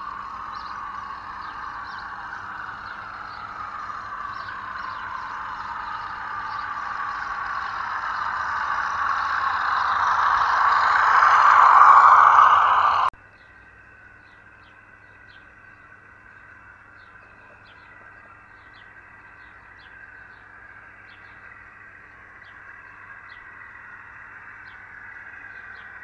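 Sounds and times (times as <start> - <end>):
model train whirring on track: 0.0 - 13.1.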